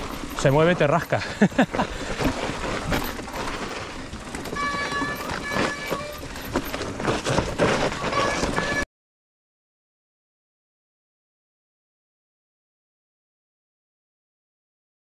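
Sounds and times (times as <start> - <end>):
brief high steady tones: 0.0 - 1.4, 4.4 - 6.9, 8.0 - 8.9
tyre rolling noise: 0.0 - 8.8.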